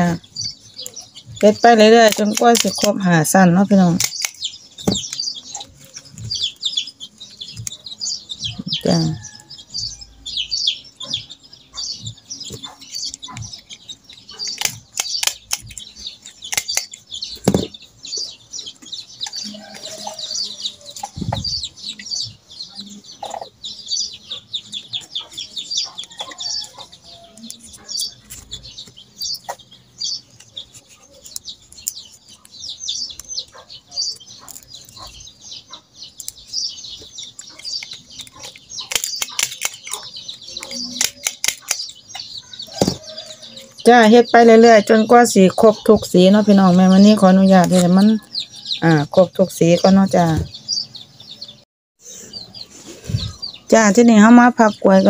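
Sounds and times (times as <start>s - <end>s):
birds chirping: 0.0s - 55.0s
sharp knocks: 17.4s - 17.7s
leaves crackling as folded by hand: 34.2s - 35.1s, 38.9s - 40.0s.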